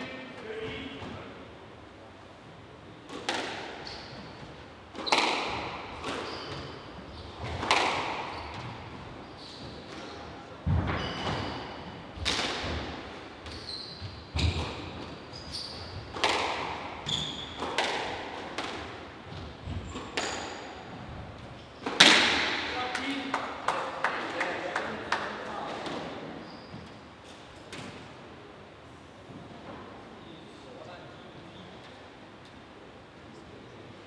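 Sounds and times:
racket hitting ball: 0:03.1 - 0:03.8, 0:04.9 - 0:06.8, 0:07.4 - 0:08.8, 0:12.2 - 0:13.0, 0:16.0 - 0:17.0, 0:17.6 - 0:20.7, 0:21.8 - 0:22.7
squash ball hitting walls: 0:03.1 - 0:03.9, 0:04.9 - 0:09.2, 0:10.6 - 0:13.6, 0:14.3 - 0:15.2, 0:15.9 - 0:21.2, 0:21.8 - 0:22.8
shoes squeaking on wooden floor: 0:03.8 - 0:07.6, 0:08.2 - 0:12.1, 0:13.4 - 0:16.2, 0:16.9 - 0:17.7, 0:26.4 - 0:27.0.

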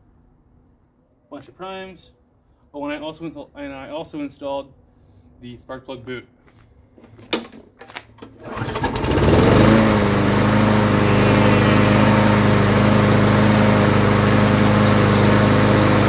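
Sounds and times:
mower engine pull-starting: 0:08.2 - 0:16.0
mower engine running: 0:08.4 - 0:16.0.

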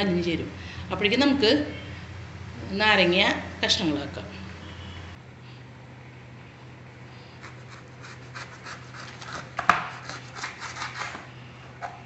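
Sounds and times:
knife sawing through rind: 0:07.2 - 0:11.4.

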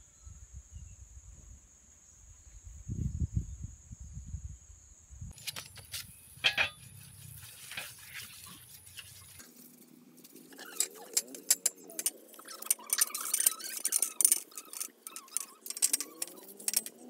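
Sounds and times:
metal tubes clicking and knocking: 0:05.4 - 0:06.9, 0:10.3 - 0:17.0
cloth wiping bicycle frame: 0:05.4 - 0:11.2.

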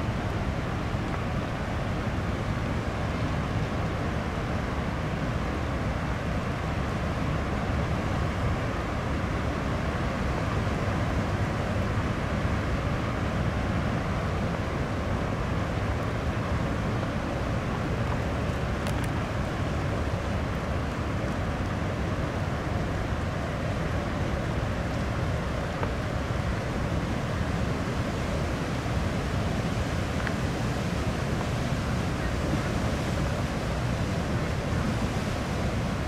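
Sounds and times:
wind on microphone: 0:00.0 - 0:36.0
ship low rumble: 0:08.1 - 0:36.0.

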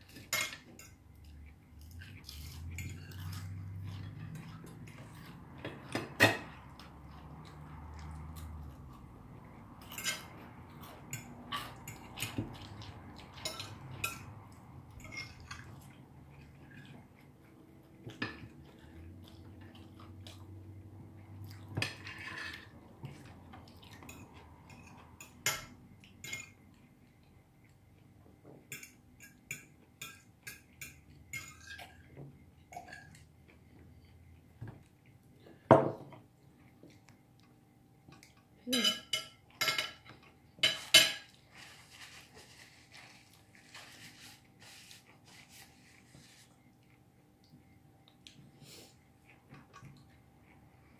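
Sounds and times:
cutlery clinking on plates: 0:00.1 - 0:01.0, 0:02.4 - 0:06.7, 0:09.8 - 0:14.3, 0:24.0 - 0:26.6, 0:38.2 - 0:41.4.

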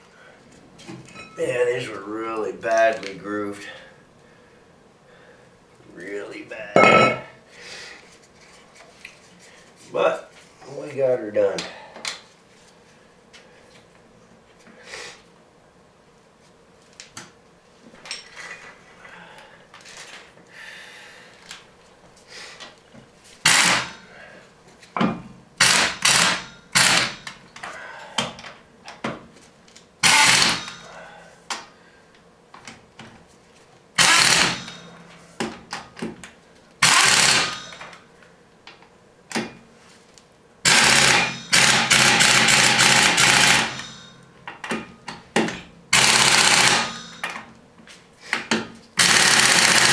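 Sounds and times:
pneumatic impact wrench bursts: 0:23.4 - 0:24.0, 0:25.6 - 0:27.3, 0:30.0 - 0:30.9, 0:34.0 - 0:34.8, 0:36.8 - 0:37.9, 0:40.6 - 0:44.0, 0:45.9 - 0:47.2, 0:49.0 - 0:49.9
clatter of nuts and tools: 0:37.0 - 0:38.0, 0:40.8 - 0:47.5.

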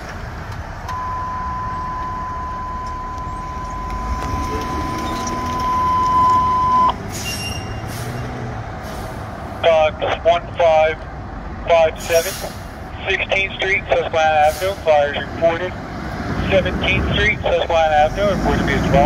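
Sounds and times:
high electronic alert beep: 0:00.9 - 0:07.7
vehicle driving past: 0:01.5 - 0:09.6.

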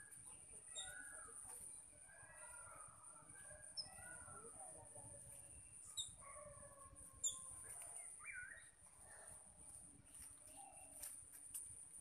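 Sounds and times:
flock of birds chattering: 0:00.0 - 0:12.0
sharp high bird chirps: 0:00.7 - 0:01.3, 0:05.8 - 0:06.2, 0:07.2 - 0:07.5.

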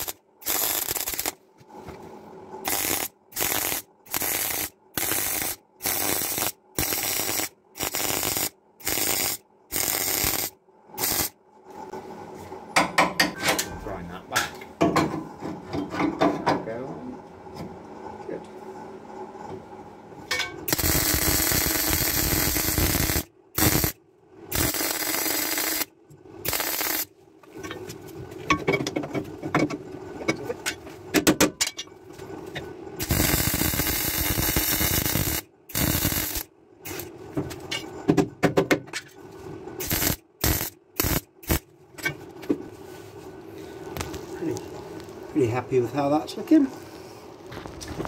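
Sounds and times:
welding arc crackling: 0:00.0 - 0:01.4, 0:02.6 - 0:11.3, 0:20.7 - 0:27.1, 0:33.0 - 0:37.1, 0:39.8 - 0:41.7
steady hum: 0:00.0 - 0:48.0.

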